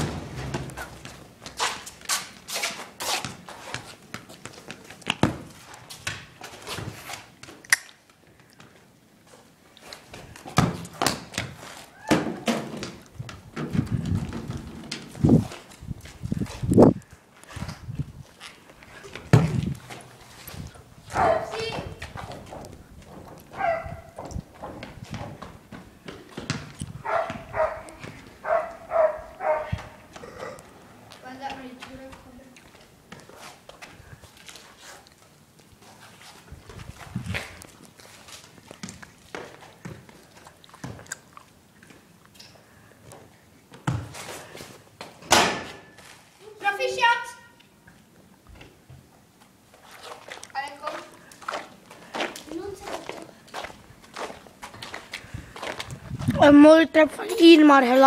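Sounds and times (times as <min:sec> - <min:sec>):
footsteps and scuffs: 0:00.4 - 0:07.7, 0:31.1 - 0:41.1, 0:48.6 - 0:56.4
ball thudding on asphalt: 0:19.3 - 0:19.7
dog barking: 0:21.1 - 0:21.5, 0:23.6 - 0:24.2, 0:27.0 - 0:29.8.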